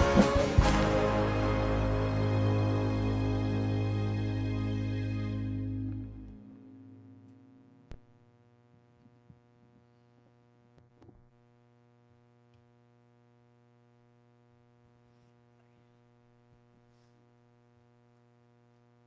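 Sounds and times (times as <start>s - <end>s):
band song ending: 0.0s - 6.5s
faint steady hum: 0.0s - 19.0s.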